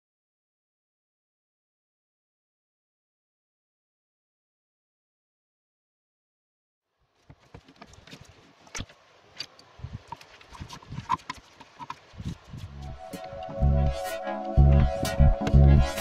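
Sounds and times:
background music: 12.7 - 16.0.

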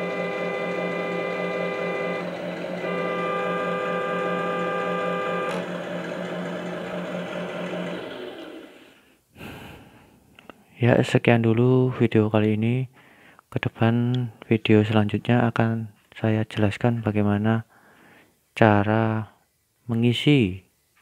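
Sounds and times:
simulated engine idle: 0.0 - 9.0
simulated truck horn: 0.0 - 9.0.

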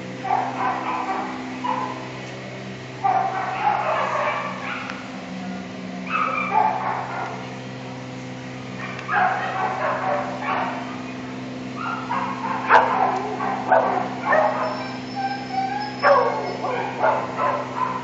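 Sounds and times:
dog yipping and barking: 0.2 - 2.0, 3.0 - 5.0, 6.1 - 7.3, 8.8 - 10.9, 11.8 - 18.0.

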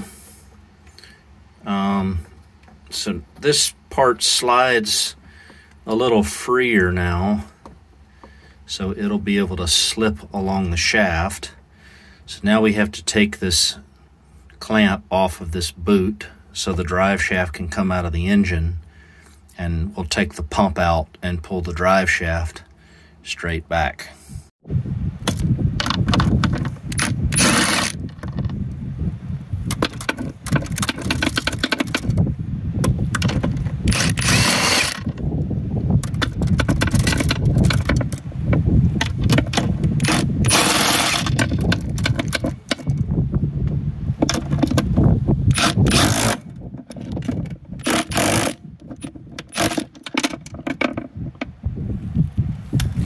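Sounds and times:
steady low rumble: 24.3 - 49.4
socket ratchet clicking: 47.8 - 51.0.

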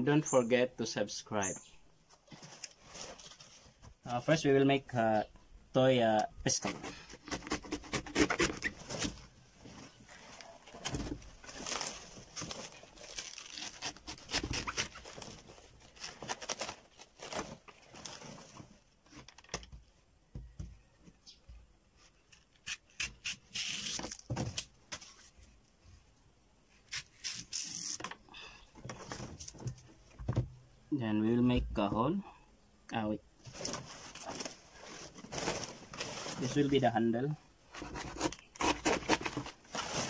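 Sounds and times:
knife cutting banana leaf: 6.5 - 9.1, 13.2 - 15.2, 22.3 - 24.7, 37.8 - 39.6
leaf tearing and rustling: 10.1 - 18.6.

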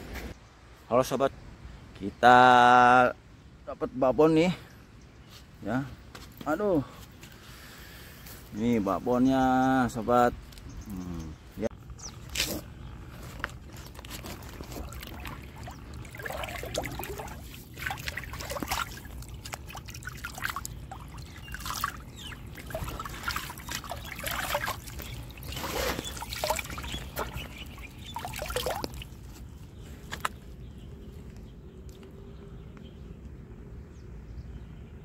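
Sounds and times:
water trickling and splashing: 13.2 - 30.4.

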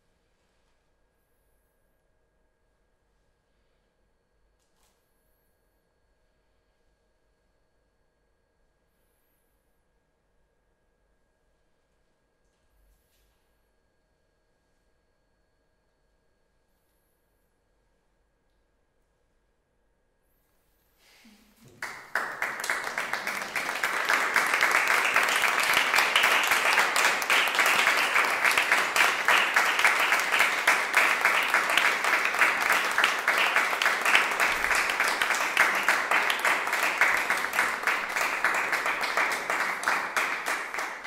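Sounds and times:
audience applauding: 21.6 - 41.0.

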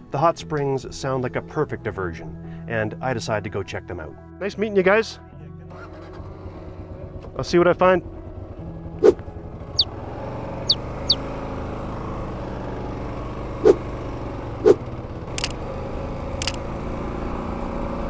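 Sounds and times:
motorcycle engine running: 5.8 - 18.0
short sharp blips: 13.6 - 13.8.

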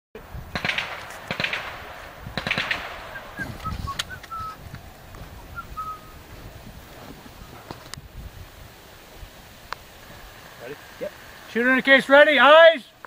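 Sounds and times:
suppressed gun bursts: 0.5 - 4.4
short high chirps: 3.1 - 4.6, 5.6 - 6.2.

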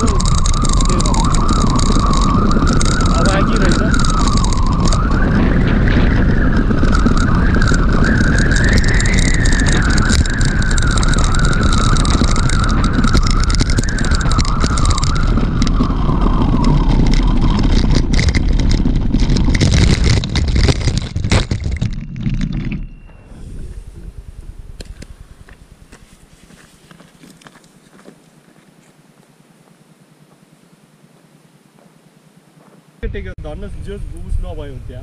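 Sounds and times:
tyres rumbling on loose ground: 0.0 - 25.9
wind buffeting microphone: 0.0 - 28.0, 33.0 - 35.0
wavering high whine: 0.0 - 35.0.

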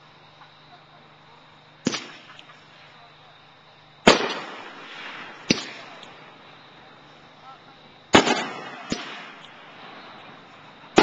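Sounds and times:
firework bangs: 1.8 - 3.0, 4.0 - 11.0.

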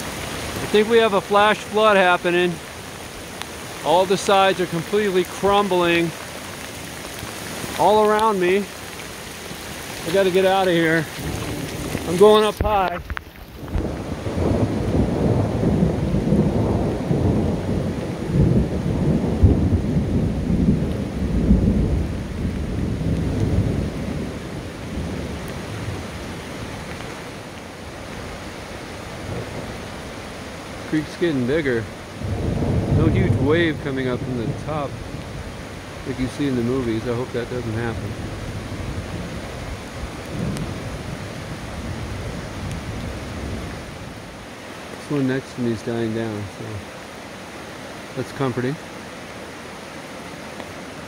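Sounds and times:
creek rushing: 0.0 - 51.0
steady rain: 0.0 - 51.0
thunder rumbling: 7.1 - 26.8, 30.9 - 44.3.

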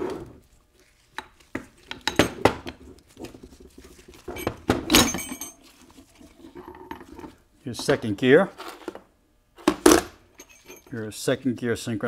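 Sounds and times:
metal gearbox parts clanking: 4.9 - 5.6.

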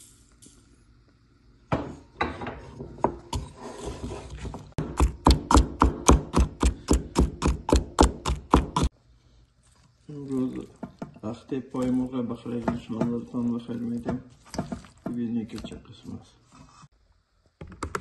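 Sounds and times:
wooden pestle pounding in mortar: 4.8 - 8.9.

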